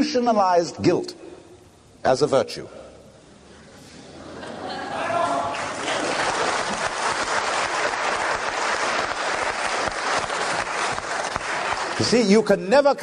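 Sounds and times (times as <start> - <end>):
audience applauding: 5.0 - 12.4.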